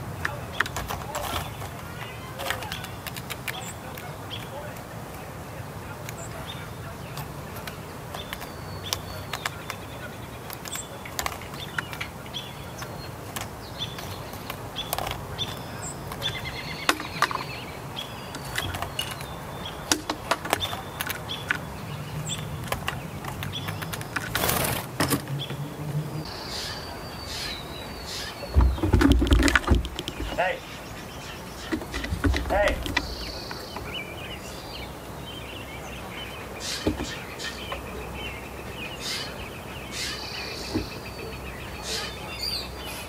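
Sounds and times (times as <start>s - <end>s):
bird pecking peanut shells: 0.2s - 4.9s, 7.1s - 25.6s, 27.4s - 34.0s.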